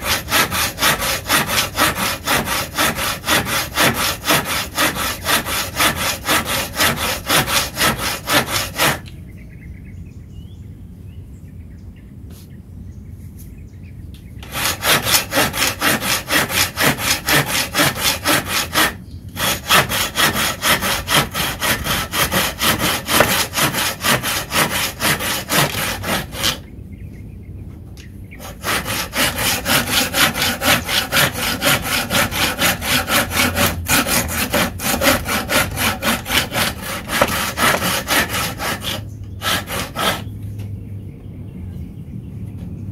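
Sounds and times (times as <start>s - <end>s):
hand saw cutting wood: 0.0s - 9.1s, 14.4s - 26.6s, 28.4s - 40.3s.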